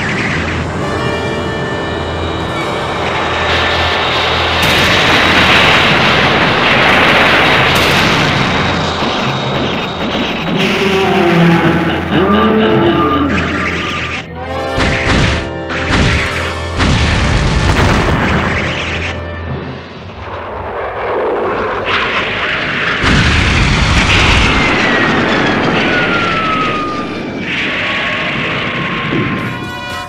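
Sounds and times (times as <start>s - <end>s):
heavy booms and crashes: 3.6s - 12.3s, 14.8s - 19.0s, 19.6s - 29.8s
soundtrack music: 10.6s - 20.5s.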